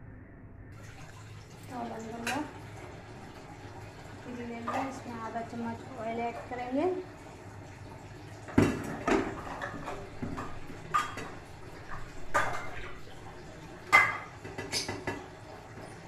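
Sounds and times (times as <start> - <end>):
kitchen utensils clinking: 1.7 - 2.6, 4.3 - 7.0, 8.5 - 16.0.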